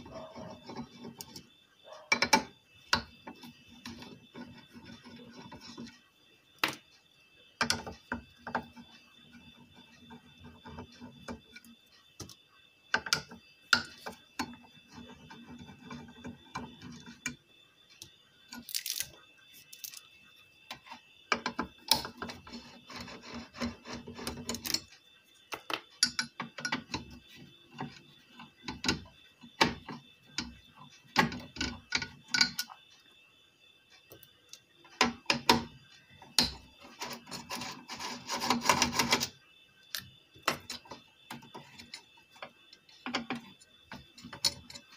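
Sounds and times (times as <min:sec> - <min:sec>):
faint steady high tone: 0:00.0 - 0:44.9
screwdriver and metal parts clicking: 0:18.5 - 0:20.0, 0:21.3 - 0:24.9, 0:39.9 - 0:44.9.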